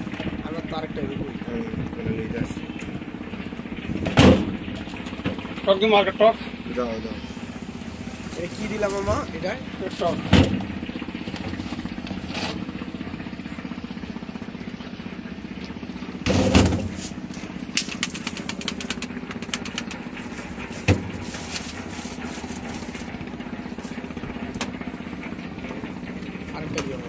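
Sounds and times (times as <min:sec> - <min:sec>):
engine idling: 0:00.0 - 0:27.0
plastic bottles rustling clatter: 0:16.3 - 0:24.8.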